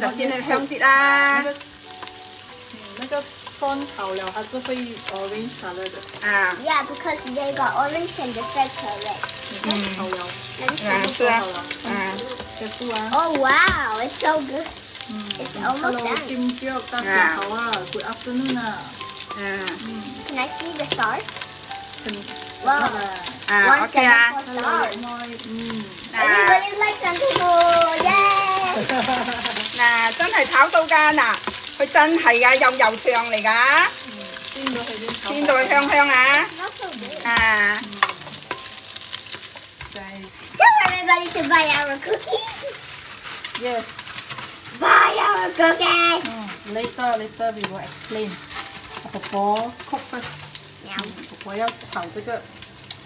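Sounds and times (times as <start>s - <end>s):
food sizzling in hot oil: 0.0s - 53.0s
spatula stirring and scraping: 22.2s - 52.0s.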